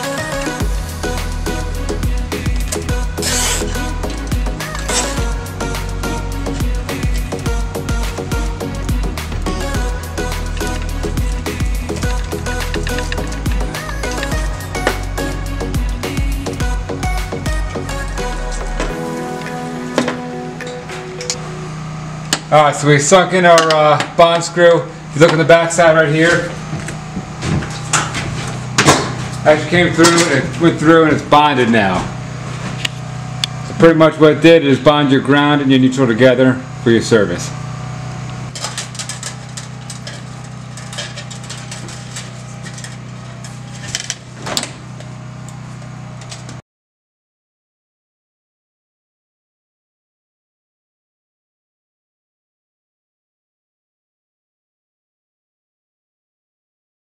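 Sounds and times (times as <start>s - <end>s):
music with deep bass: 0.0s - 23.2s
steady low hum: 0.0s - 46.6s
metal wires clicking and scraping: 10.3s - 15.0s, 38.5s - 44.3s.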